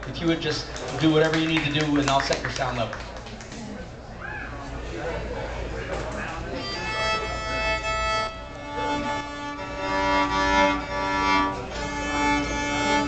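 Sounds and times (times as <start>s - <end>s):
solo violin long held notes: 6.6s - 13.0s.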